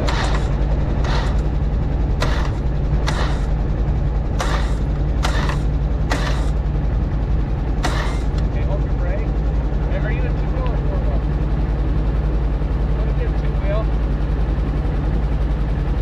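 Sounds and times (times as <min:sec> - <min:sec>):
short hissy rasp: 0:00.0 - 0:01.4, 0:02.2 - 0:03.6, 0:04.4 - 0:06.6, 0:07.8 - 0:08.4
off-road vehicle engine idling: 0:00.0 - 0:16.0.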